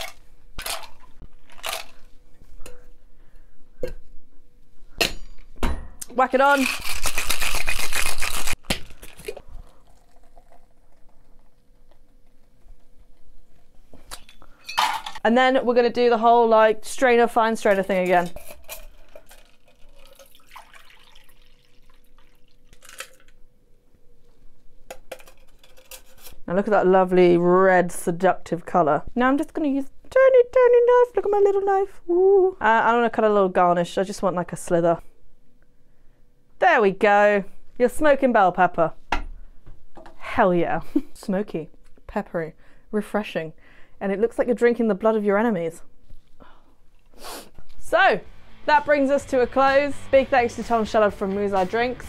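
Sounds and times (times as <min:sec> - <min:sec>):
ice cubes clattering into metal tin: 0:00.0 - 0:02.0, 0:06.4 - 0:09.3, 0:22.7 - 0:23.3
liquid pouring into glass: 0:08.9 - 0:11.6, 0:18.9 - 0:23.2.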